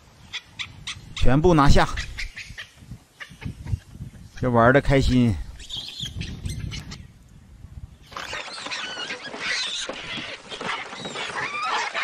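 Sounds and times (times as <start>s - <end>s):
baboons calling: 8.1s - 12.0s.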